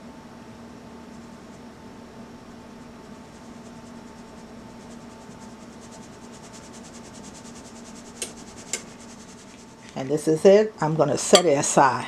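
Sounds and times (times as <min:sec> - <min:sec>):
faint steady hum: 0:00.0 - 0:12.0
flour sieve rasping: 0:02.6 - 0:09.9.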